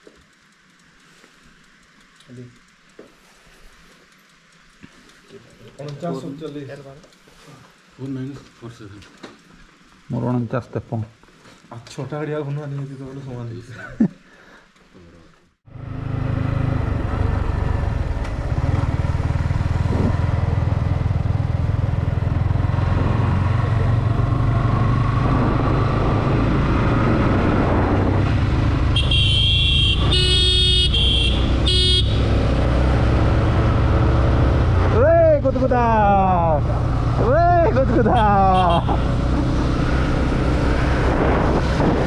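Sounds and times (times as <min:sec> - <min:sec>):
motorcycle engine running: 0:15.7 - 0:42.0
wind rushing over microphone: 0:24.2 - 0:28.9, 0:39.5 - 0:42.0
vehicle horn blasts: 0:28.9 - 0:32.4, 0:38.2 - 0:39.2.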